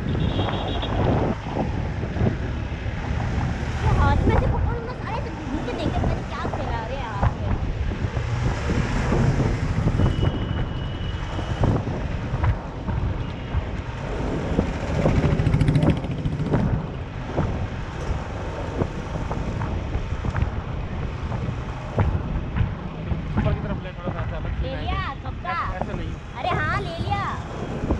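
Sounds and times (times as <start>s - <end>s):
street traffic: 0.0s - 27.9s
wind buffeting microphone: 0.0s - 27.9s
scooter engine running: 14.6s - 16.8s.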